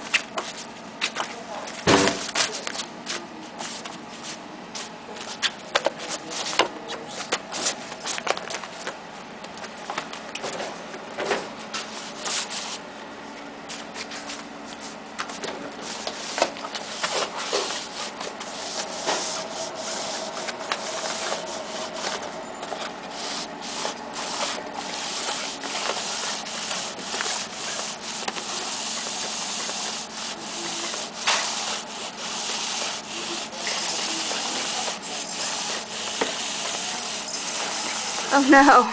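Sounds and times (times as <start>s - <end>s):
rubbing and scratching: 13.7s - 38.8s.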